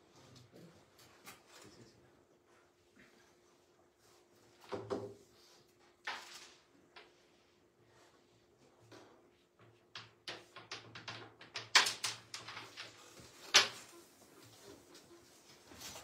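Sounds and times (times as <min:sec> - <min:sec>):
carrom pieces clacking: 0:10.0 - 0:13.9.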